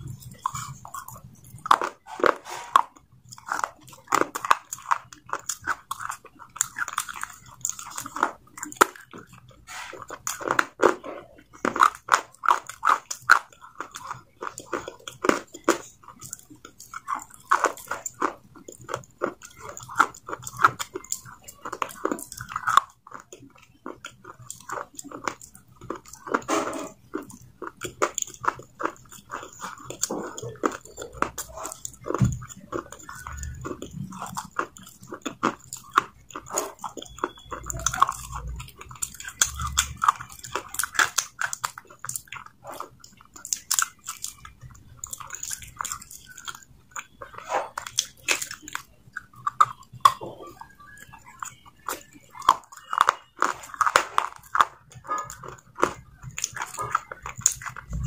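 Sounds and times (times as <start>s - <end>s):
crunching and chewing clay: 0.0s - 58.0s.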